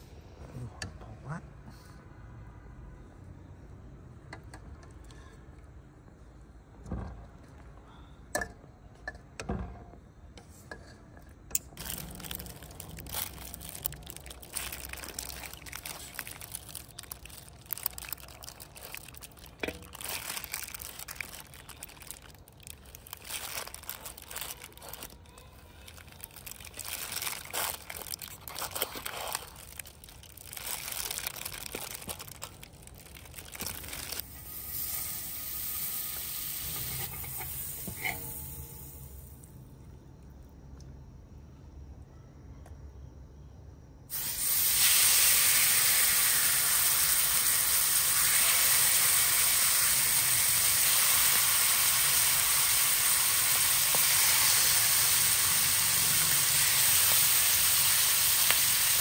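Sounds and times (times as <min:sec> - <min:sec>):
water pouring and splashing: 0:11.8 - 0:25.1
steady hiss: 0:34.1 - 0:39.9, 0:44.1 - 0:59.0.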